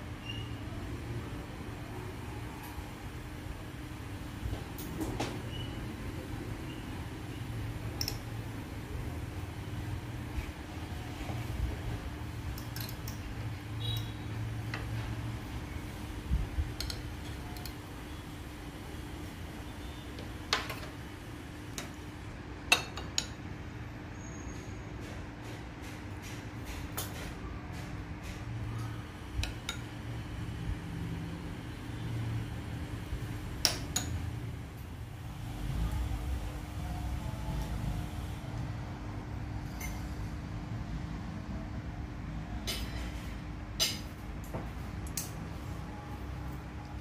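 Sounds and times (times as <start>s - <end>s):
metal tongs clinking on plate: 39.7s - 40.1s.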